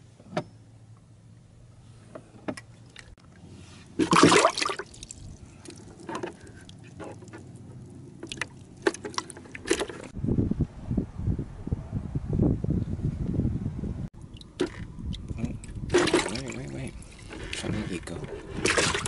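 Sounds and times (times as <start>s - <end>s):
water splashing in bucket: 4.0s - 7.4s, 8.2s - 10.1s, 14.3s - 19.0s
water dripping: 4.2s - 7.3s.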